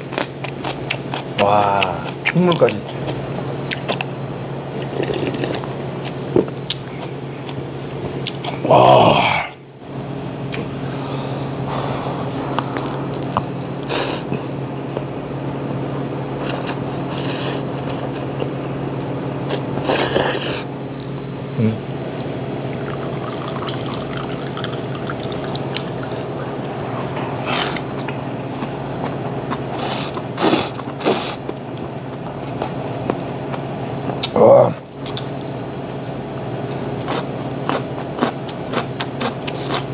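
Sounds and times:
steady low hum: 0.0 - 39.9
noodles being slurped: 29.6 - 31.4.

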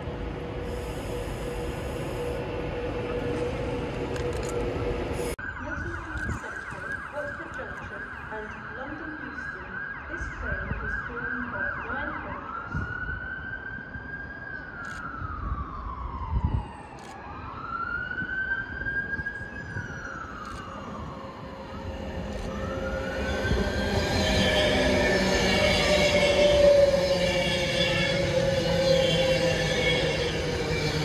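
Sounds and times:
train rumbling: 0.0 - 5.4, 20.4 - 31.0
emergency siren yelp and wail: 5.3 - 31.0.

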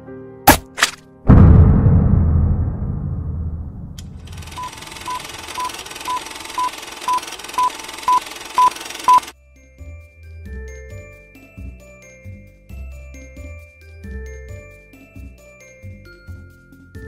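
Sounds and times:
low rumbling impact tail: 1.3 - 5.0
short high beeps: 4.3 - 9.3.

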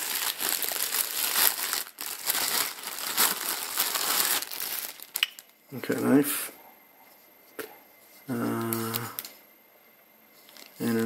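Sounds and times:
plastic wrapping crinkling: 0.0 - 5.6, 10.4 - 11.0.

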